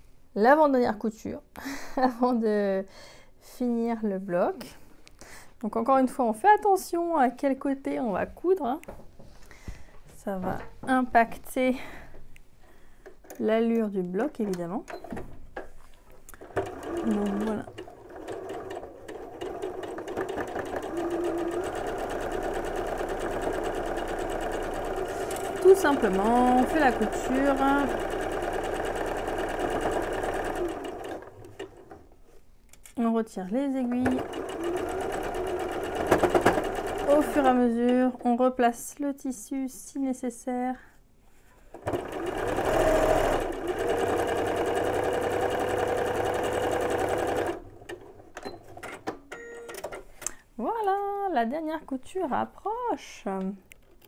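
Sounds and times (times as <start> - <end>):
sewing machine stitching: 16.4 - 32.0, 34.0 - 37.7, 41.7 - 49.1.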